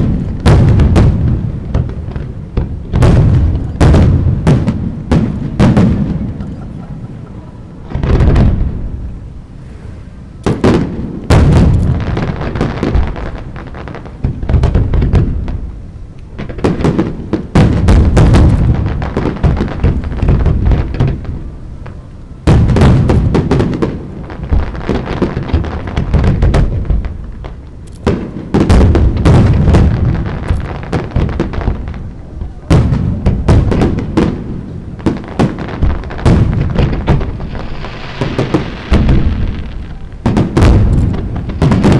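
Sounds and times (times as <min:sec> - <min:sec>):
deep rumble of reports: 0:00.0 - 0:10.5
fireworks bangs: 0:00.0 - 0:41.9.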